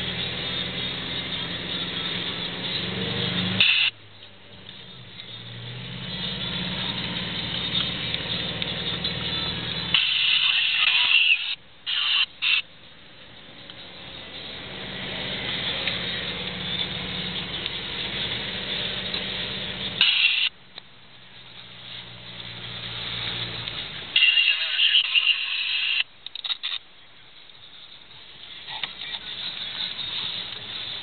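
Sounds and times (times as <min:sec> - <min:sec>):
off-road vehicle engine: 0:00.0 - 0:31.0
harsh high-pitched noise: 0:03.6 - 0:04.0, 0:09.9 - 0:12.7, 0:20.0 - 0:20.5, 0:24.2 - 0:26.1.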